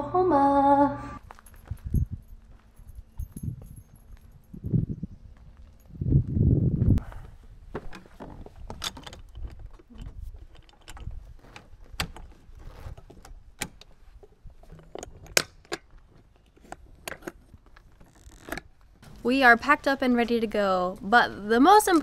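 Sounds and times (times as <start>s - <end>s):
metal latches clicking and clanking: 7.8s - 14.0s, 14.6s - 18.7s.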